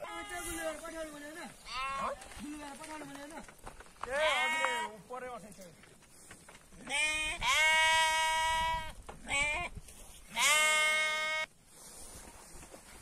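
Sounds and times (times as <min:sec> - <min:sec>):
sheep bleating: 0:00.0 - 0:00.7, 0:01.6 - 0:02.4, 0:04.1 - 0:05.0, 0:06.8 - 0:09.7, 0:10.3 - 0:11.5.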